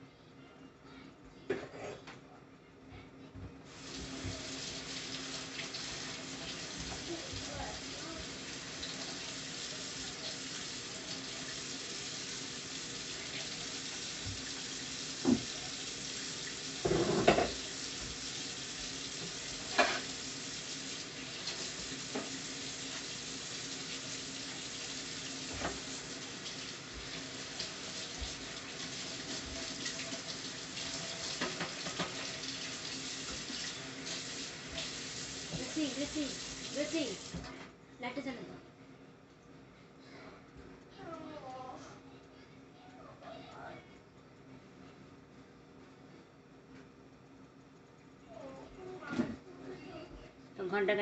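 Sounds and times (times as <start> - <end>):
pan simmering with hiss: 3.6 - 37.5.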